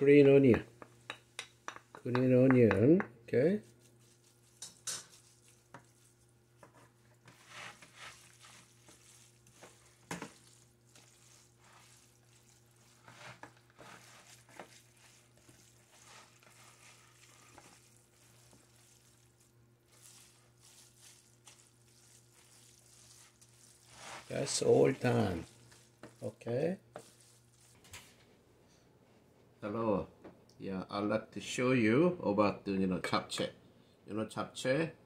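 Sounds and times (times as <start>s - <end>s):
noodles stirred in plastic bowl: 3.6s - 28.2s.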